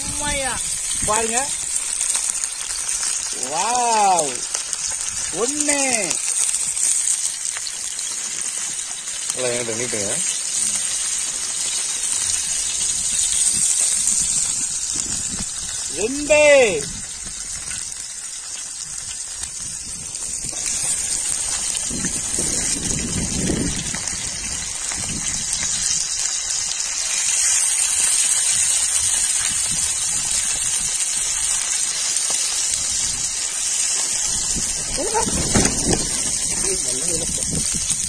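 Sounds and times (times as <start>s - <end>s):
wind rumbling on microphone: 0.0s - 3.4s, 12.2s - 26.3s, 28.5s - 31.5s, 32.7s - 33.5s, 34.1s - 38.0s
fish sizzling in oil: 0.0s - 38.0s.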